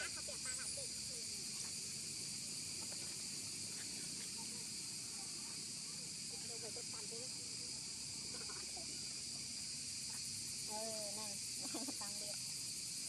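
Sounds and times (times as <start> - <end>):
faint squeaky calls: 0.0 - 1.3
insect chorus buzzing: 0.0 - 13.0.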